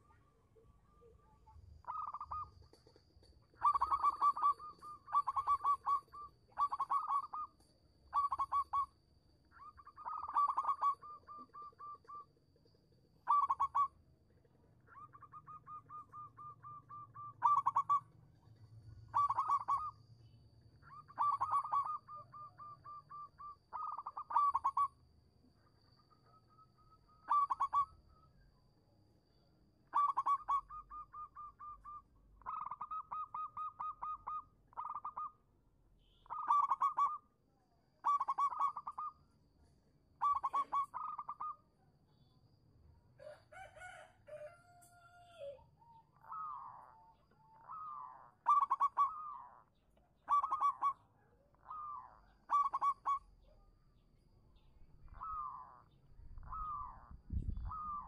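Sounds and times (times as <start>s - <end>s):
low drawn-out bird call: 0.0s - 2.8s, 3.5s - 12.4s, 14.8s - 25.0s, 25.7s - 28.7s, 29.8s - 37.4s, 38.0s - 39.3s, 40.2s - 42.4s, 43.2s - 58.0s
dove cooing: 1.8s - 8.9s, 9.6s - 12.3s, 13.2s - 14.0s, 14.9s - 18.1s, 19.0s - 20.0s, 20.8s - 25.0s, 27.2s - 28.0s, 29.9s - 35.4s, 36.3s - 37.2s, 38.0s - 39.2s, 40.2s - 41.6s, 43.2s - 53.6s, 54.9s - 58.0s.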